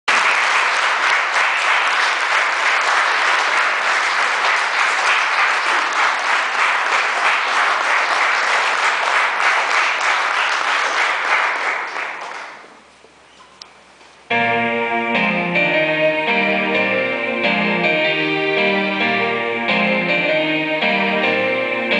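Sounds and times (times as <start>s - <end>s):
audience applause: 0.1s - 12.7s
music: 14.3s - 21.9s.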